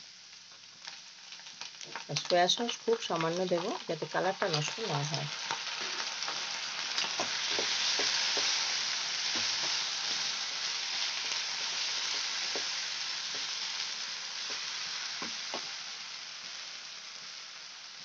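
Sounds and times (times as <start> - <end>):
vegetables sizzling in a wok: 0.0 - 18.0.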